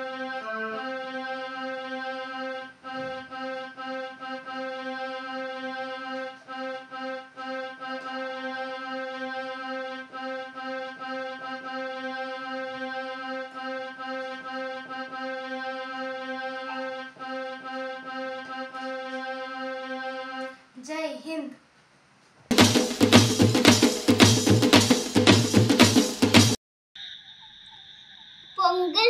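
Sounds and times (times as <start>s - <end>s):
held low keyboard note: 0.0s - 20.5s
electronic keyboard notes: 0.0s - 20.6s.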